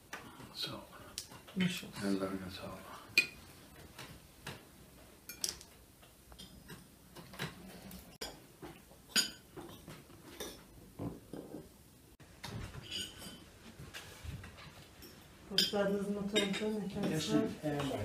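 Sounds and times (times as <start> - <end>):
cutlery clinking on plates: 3.1 - 4.6, 5.2 - 5.7, 6.3 - 11.7, 12.5 - 18.0.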